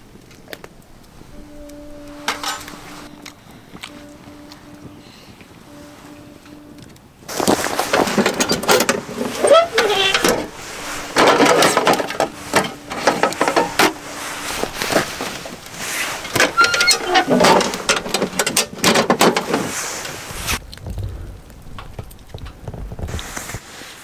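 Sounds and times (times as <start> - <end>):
low rumble: 0.8 - 9.4, 20.4 - 23.3
tableware clattering: 2.3 - 2.8, 7.6 - 15.5.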